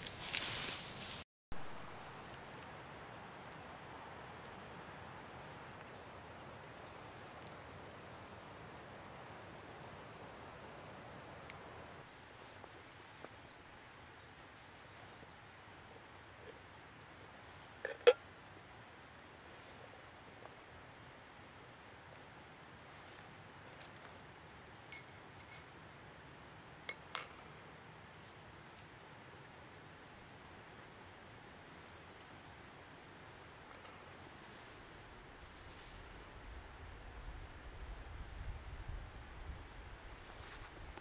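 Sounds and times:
faint outdoor hiss: 0.0s - 41.0s
metal clink on rock: 24.9s - 25.7s, 26.9s - 27.6s, 33.7s - 34.1s.

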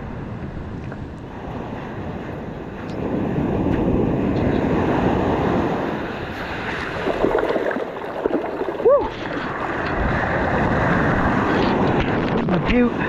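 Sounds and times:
wind buffeting microphone: 0.0s - 13.0s
waves washing up a beach: 0.7s - 13.0s
short water splashes: 6.2s - 9.8s.

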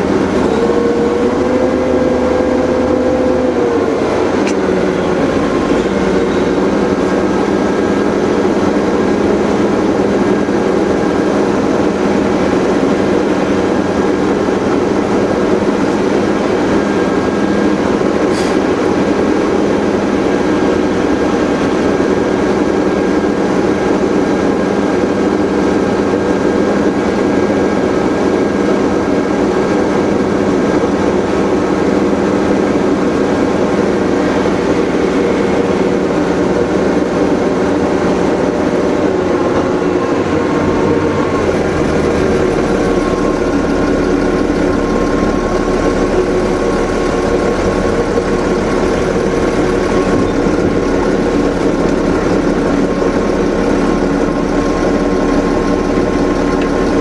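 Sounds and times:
vehicle engine running: 0.0s - 57.0s.

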